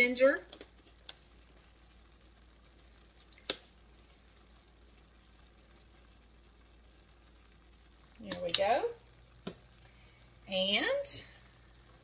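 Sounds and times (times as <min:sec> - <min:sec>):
meat sizzling in a frying pan: 0:00.0 - 0:12.0.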